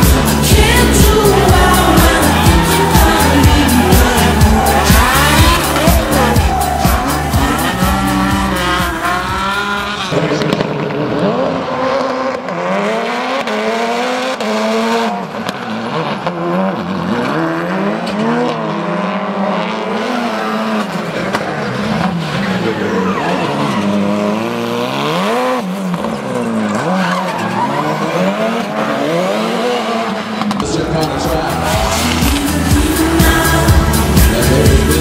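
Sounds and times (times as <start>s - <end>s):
tyres squealing and skidding: 0.0s - 10.4s, 19.9s - 35.0s
car engine revving: 0.0s - 35.0s.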